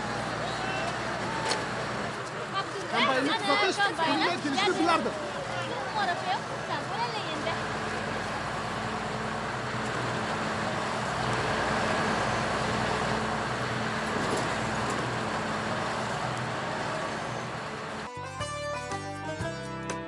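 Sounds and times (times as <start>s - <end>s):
combine harvester engine drone: 0.0s - 18.2s.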